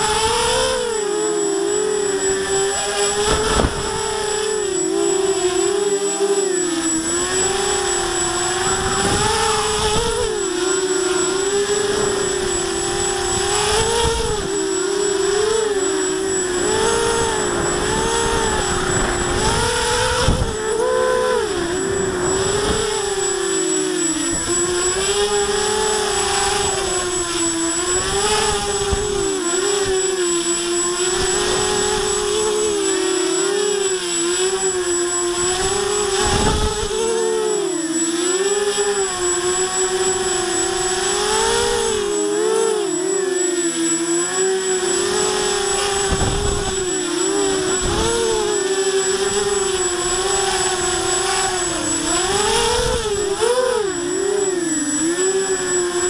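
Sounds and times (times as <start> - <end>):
quadcopter motors whining: 0.0 - 56.0
wind rumble on microphone: 2.0 - 5.6, 7.0 - 30.2, 30.8 - 32.8, 34.4 - 37.1, 45.0 - 53.7.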